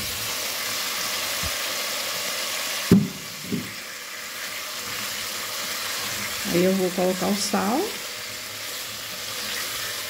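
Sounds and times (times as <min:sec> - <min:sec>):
oil sizzling in a pot: 0:00.0 - 0:10.0
sharp knock: 0:02.9 - 0:03.7.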